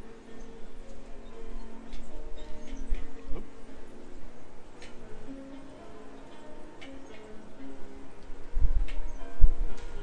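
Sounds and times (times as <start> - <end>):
wind buffeting microphone: 8.3 - 10.0.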